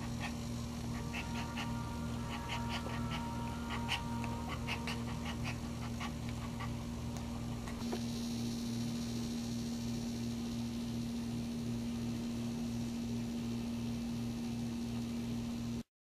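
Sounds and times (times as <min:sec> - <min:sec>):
dog panting quickly: 0:00.0 - 0:06.9
low electrical hum: 0:00.0 - 0:15.9.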